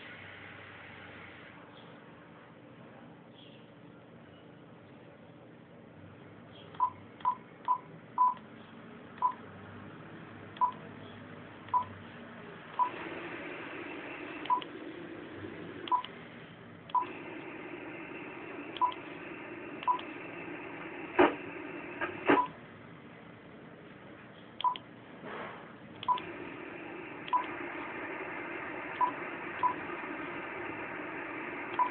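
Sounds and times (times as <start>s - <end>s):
radio receiver hiss: 12.9s - 16.2s, 17.0s - 22.4s, 26.2s - 31.9s
short key beeps: 14.4s - 14.7s, 18.8s - 19.1s, 19.8s - 20.1s, 27.3s - 27.5s.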